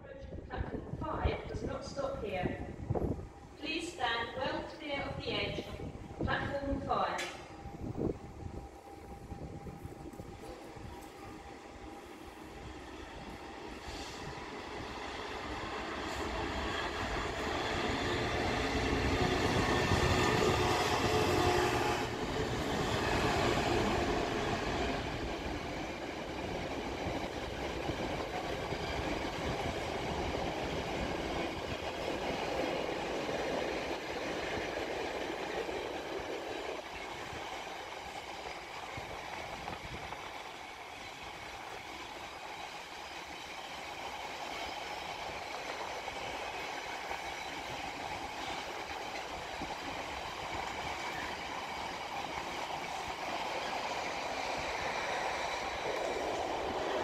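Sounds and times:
freight train rolling: 0.0s - 57.0s
train wheels rumbling and clattering: 9.4s - 57.0s.

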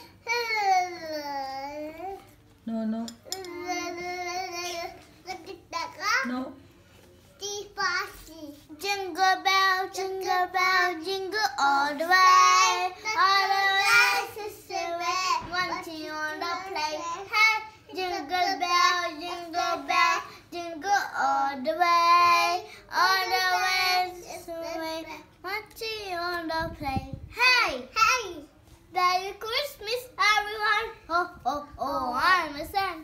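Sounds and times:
child singing: 7.4s - 33.0s.

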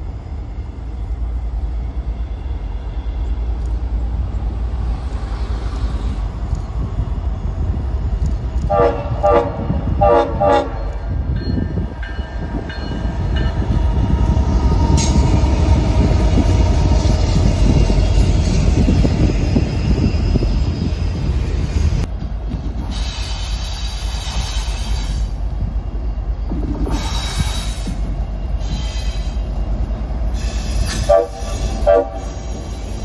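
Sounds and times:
train rumbling past: 0.0s - 33.0s
train horn blasts: 8.6s - 11.0s, 30.8s - 32.6s.

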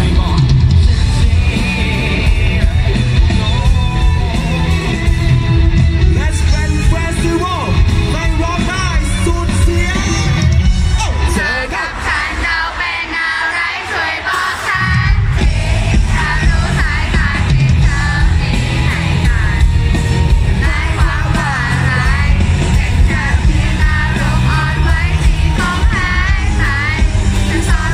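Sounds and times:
man singing into a microphone: 0.0s - 4.1s
live pop-rock band: 0.0s - 27.9s.

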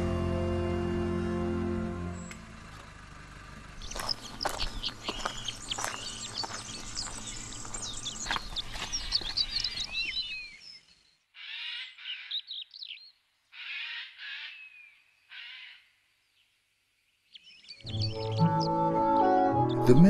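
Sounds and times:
birds chirping: 3.6s - 20.0s
harsh raspy bird calls: 3.8s - 15.9s.

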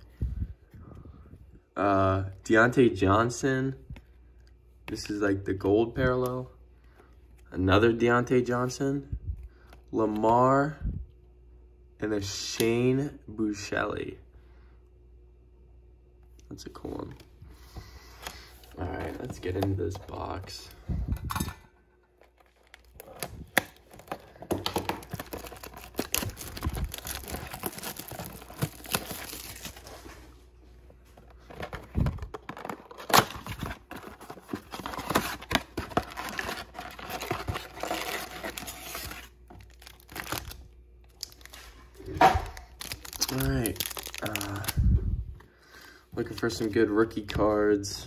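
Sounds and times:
foil packs crinkling: 22.2s - 30.3s, 31.1s - 44.9s
cardboard box being torn open: 25.0s - 29.8s.

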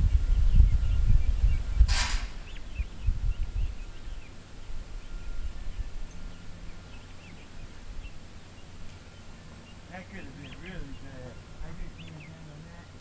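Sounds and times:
low rumbling noise: 0.0s - 6.1s
faint bird chirps: 0.2s - 13.0s.

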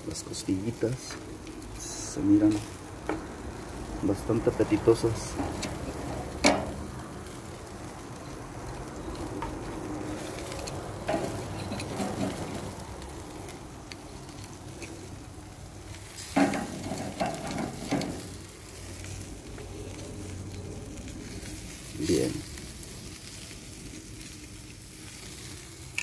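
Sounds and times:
meat sizzling on a grill: 0.0s - 26.0s
metal tongs clacking on grate: 5.2s - 6.9s, 10.4s - 12.7s, 16.2s - 18.4s.

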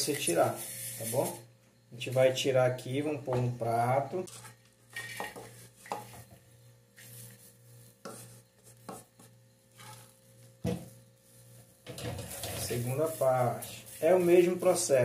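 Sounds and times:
wooden spatula scraping frying pan: 4.3s - 6.3s, 7.0s - 10.4s, 11.2s - 14.8s.

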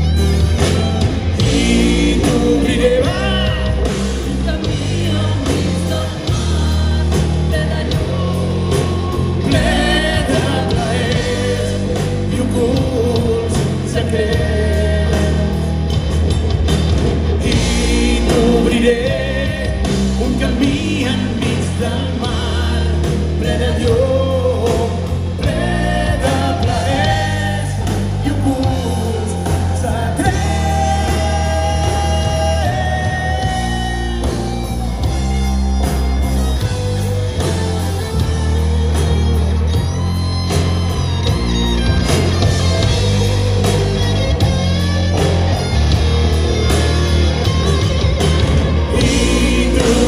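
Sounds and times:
drum kit: 0.0s - 50.0s
electric bass: 0.0s - 50.0s
electric guitar: 0.0s - 50.0s
person singing lead: 48.8s - 50.0s.

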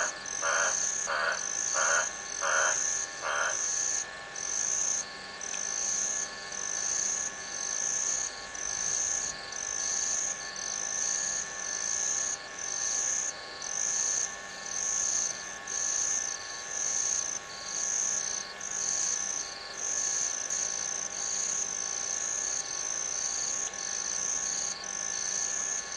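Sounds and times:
chorus of low animal calls: 0.0s - 3.7s
high-pitched animal call: 0.0s - 3.8s.

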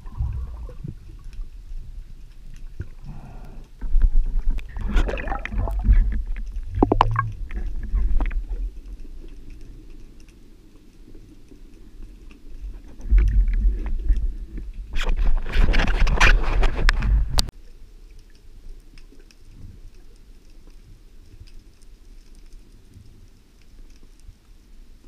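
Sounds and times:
underwater rumble: 0.0s - 25.0s
underwater knocks and clicks: 3.8s - 10.3s, 12.0s - 17.5s.

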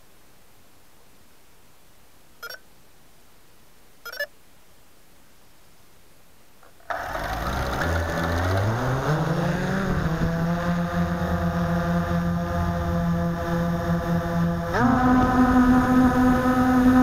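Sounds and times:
quadcopter motors whirring: 6.8s - 17.0s.

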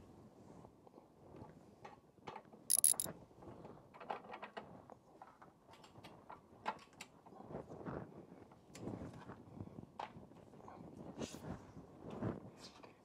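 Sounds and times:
hand ratchet clicking: 2.7s - 3.1s.

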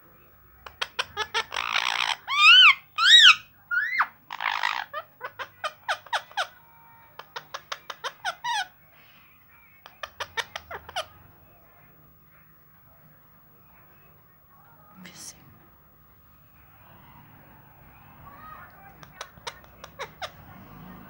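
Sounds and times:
parakeets squawking: 0.6s - 8.8s, 9.9s - 11.3s, 16.6s - 21.0s.

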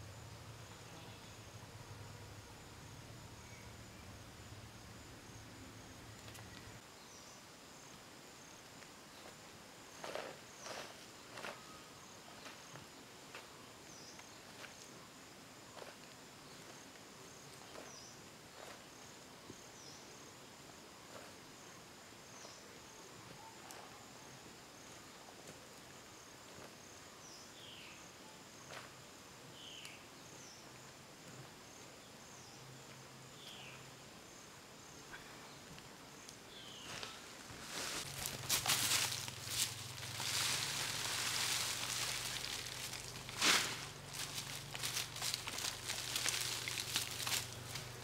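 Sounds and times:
high insect drone: 0.0s - 23.2s, 24.4s - 48.0s
basket clicks and rustles: 37.7s - 48.0s.

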